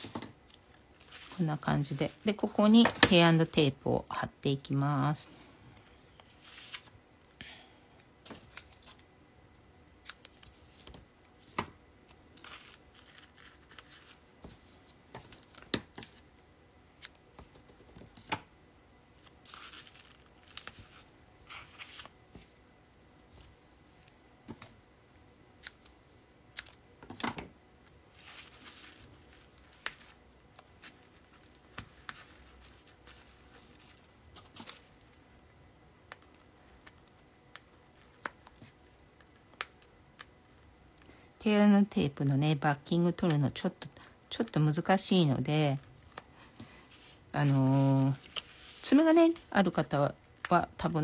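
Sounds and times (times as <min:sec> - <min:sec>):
tape rustling and tearing: 0:12.4 - 0:16.2, 0:19.2 - 0:22.2.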